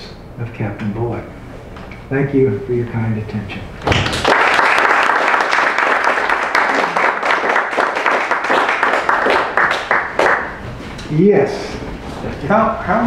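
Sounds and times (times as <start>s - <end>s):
audience applauding: 3.9s - 10.6s.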